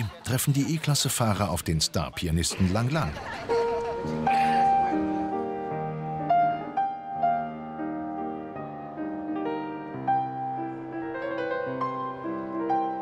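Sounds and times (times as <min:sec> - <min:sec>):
piano music: 0:03.1 - 0:13.0.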